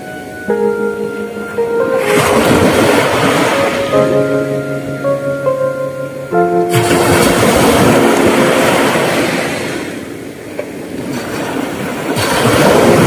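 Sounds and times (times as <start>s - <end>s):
waves washing up a beach: 2.0s - 4.2s, 6.7s - 13.0s.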